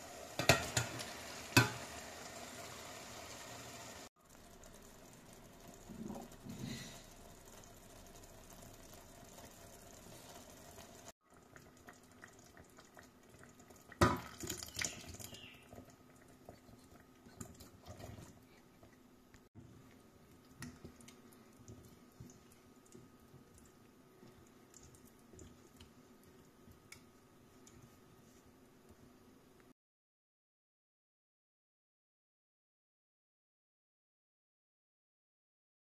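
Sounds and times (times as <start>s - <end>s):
stew simmering: 0.0s - 29.4s
chickpeas splashing into pot: 14.0s - 15.5s.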